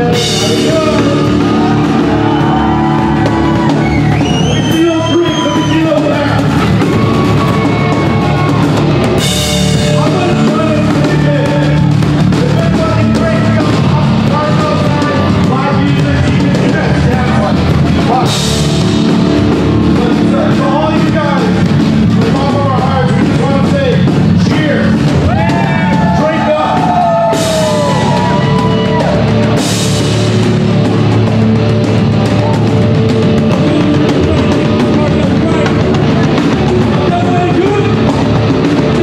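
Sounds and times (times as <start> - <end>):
alternative rock band playing: 0.0 - 39.0
person singing: 33.4 - 37.3.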